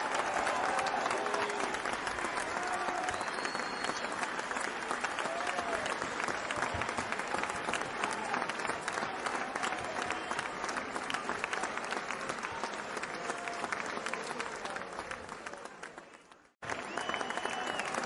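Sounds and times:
crowd applauding: 0.0 - 18.0.

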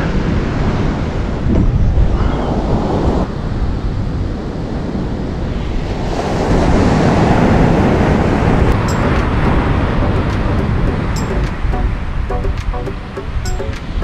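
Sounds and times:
wind buffeting microphone: 0.0 - 11.8
ocean surf breaking on beach: 0.0 - 12.3.

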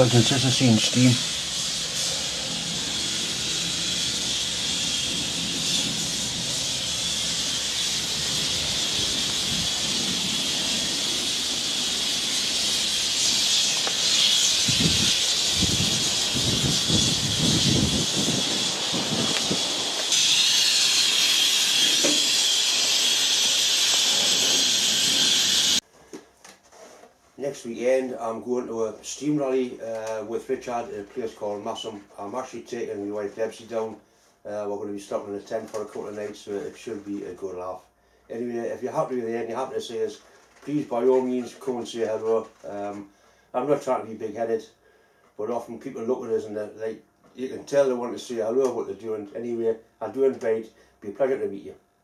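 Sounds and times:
steam hissing: 0.0 - 25.8.

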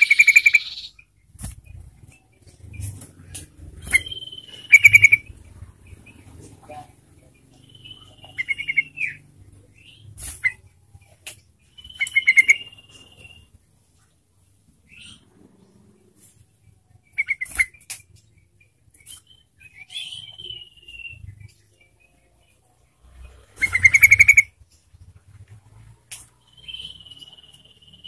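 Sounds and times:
bird singing bubbling phrases: 0.0 - 1.1, 3.9 - 6.3.

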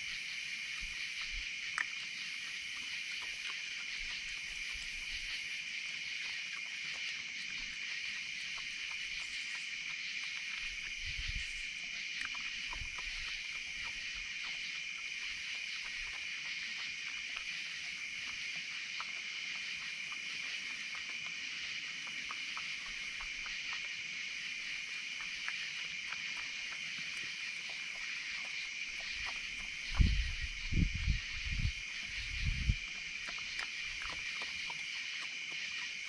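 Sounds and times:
night insects chorus: 0.0 - 36.0
animal chewing clicks: 33.1 - 36.0.

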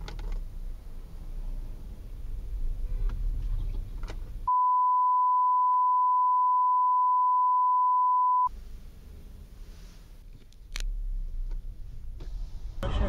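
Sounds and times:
in-car road rumble: 0.0 - 4.5, 8.3 - 13.0
high beep tone: 4.5 - 8.5.

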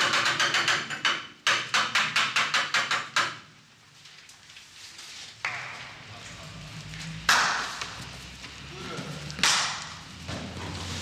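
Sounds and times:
fast sharp knocks: 0.0 - 3.4.

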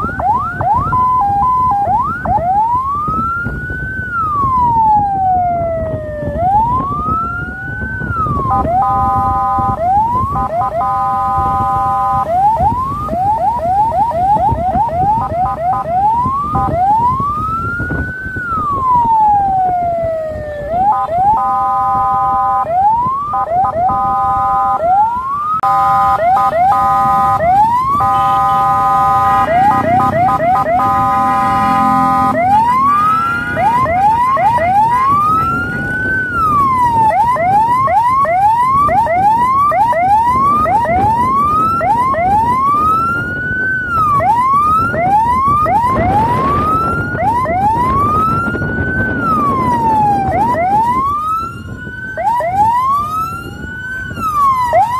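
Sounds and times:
electronic vehicle siren: 0.0 - 54.9
road and engine rumble: 0.0 - 54.9.

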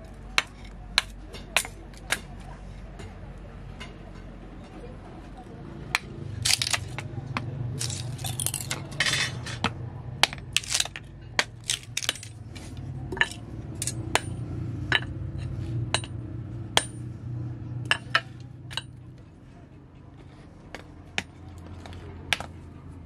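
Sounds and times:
hammer striking metal on anvil: 13.2 - 15.1, 15.9 - 16.2, 16.8 - 17.2.

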